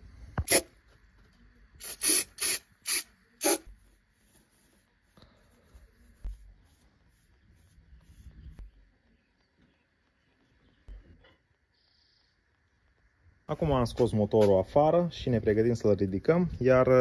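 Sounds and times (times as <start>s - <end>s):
aerosol spray can hissing: 0.4s - 0.7s, 1.8s - 3.6s
brush strokes on metal: 3.3s - 8.7s.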